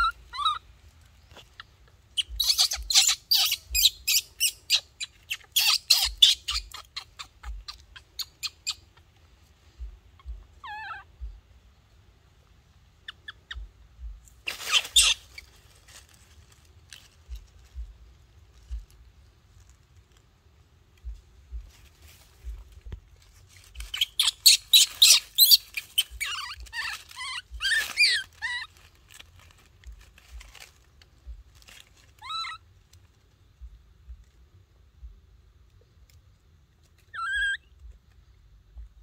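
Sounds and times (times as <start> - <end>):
baby monkey squealing: 0.0 - 0.6, 1.4 - 8.9, 10.2 - 11.4, 13.0 - 13.8, 14.4 - 15.5, 23.8 - 28.7, 32.2 - 32.6, 37.1 - 37.7
dry leaves rustling: 14.2 - 20.3, 21.6 - 33.4.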